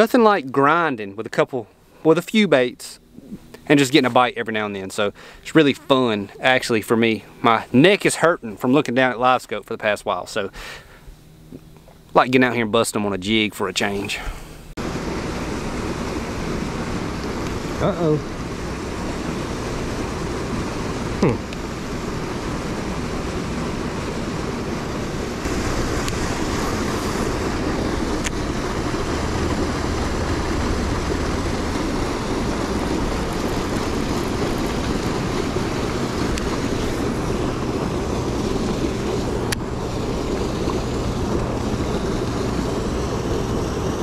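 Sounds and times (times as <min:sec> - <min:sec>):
wind: 0:00.0 - 0:44.0
water noise: 0:11.2 - 0:44.0
boat motor humming: 0:13.0 - 0:44.0.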